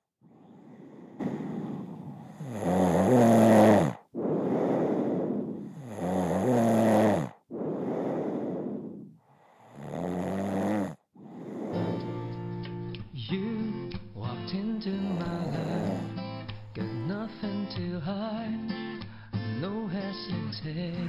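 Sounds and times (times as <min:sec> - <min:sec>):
breathy exhale: 0:00.2 - 0:12.5, 0:15.0 - 0:16.2
woman snoring: 0:00.2 - 0:12.5, 0:15.0 - 0:16.2.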